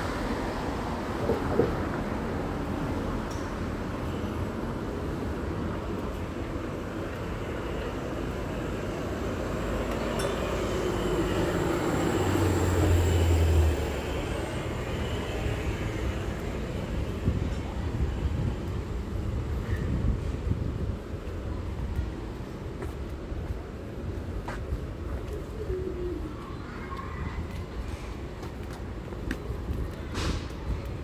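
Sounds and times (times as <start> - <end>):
city street traffic: 0.0 - 31.0
wind buffeting microphone: 15.4 - 31.0.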